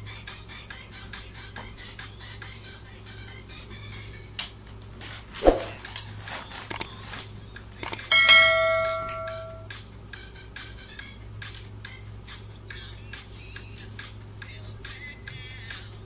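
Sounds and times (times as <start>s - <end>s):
quick clicks: 6.7s - 6.9s, 7.8s - 8.1s
bright bell ding: 8.0s - 9.7s.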